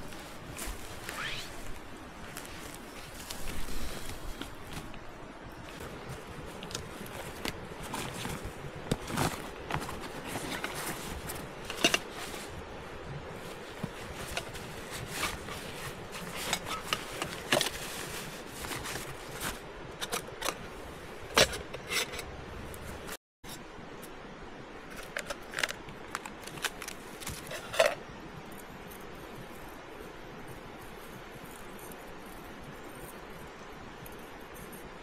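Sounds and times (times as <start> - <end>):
nylon sack rustling: 0.0 - 19.7.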